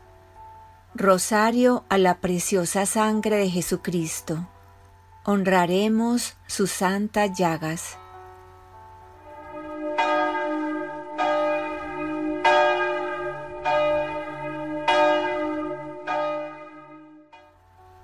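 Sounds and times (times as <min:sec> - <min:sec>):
church bell tolling: 0:09.2 - 0:17.5.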